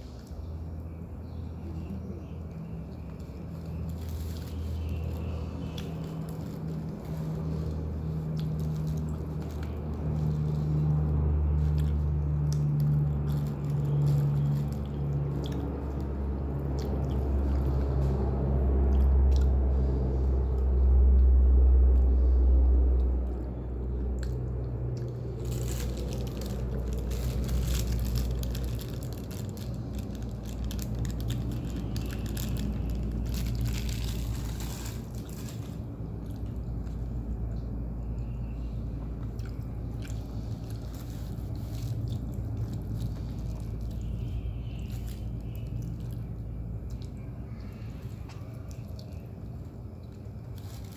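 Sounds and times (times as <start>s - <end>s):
low steady hum: 0.0s - 50.9s
paper wrapper crackling: 3.0s - 18.3s, 25.0s - 36.7s, 40.2s - 46.2s, 50.2s - 50.9s
chewing and biting: 3.0s - 19.6s, 39.2s - 50.9s.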